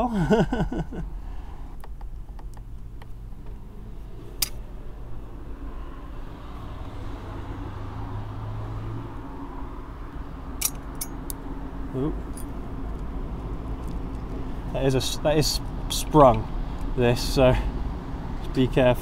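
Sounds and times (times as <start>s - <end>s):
sharp metallic clicks: 10.6s - 11.4s.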